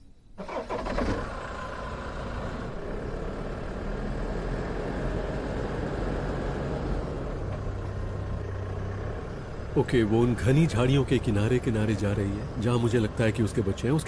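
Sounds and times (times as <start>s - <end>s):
vehicle engine starting and running: 0.4s - 14.0s.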